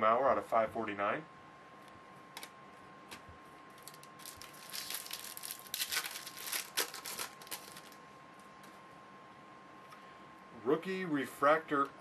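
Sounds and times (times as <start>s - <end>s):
foil wrapper crinkling: 3.8s - 8.0s.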